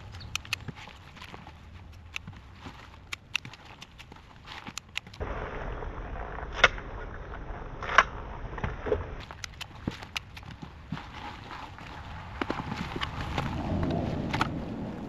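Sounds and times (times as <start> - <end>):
hand shears snipping: 0.0 - 5.2, 9.2 - 11.2.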